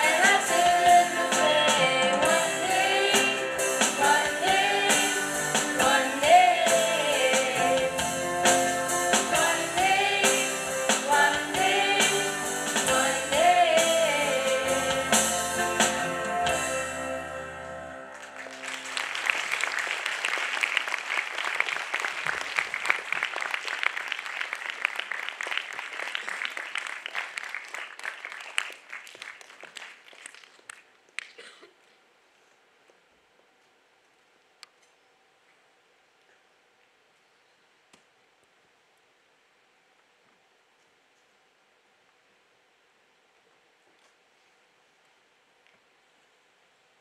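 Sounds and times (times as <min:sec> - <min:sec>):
choir singing with piano and drums: 0:00.0 - 0:17.8
audience applause: 0:18.1 - 0:31.4.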